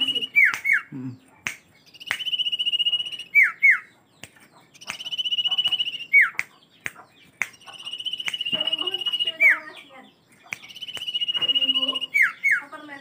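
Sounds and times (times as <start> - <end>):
bird trilling: 0.0 - 13.0
sharp clicks: 1.4 - 2.8, 4.2 - 9.1, 10.4 - 11.8
bird down-slurred whistles: 1.8 - 3.9, 4.8 - 6.4, 7.4 - 9.6, 10.6 - 12.6.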